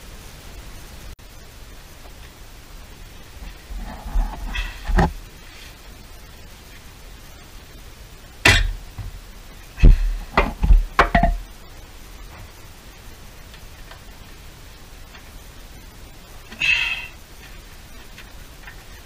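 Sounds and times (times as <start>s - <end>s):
metal exhaust parts clanking: 8.4s - 9.2s, 9.8s - 11.5s.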